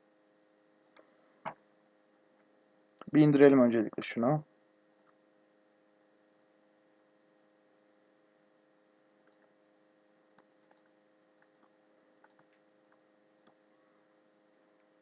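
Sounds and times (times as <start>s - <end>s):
computer mouse clicks: 5.0s - 5.2s, 9.2s - 9.5s, 10.3s - 13.6s.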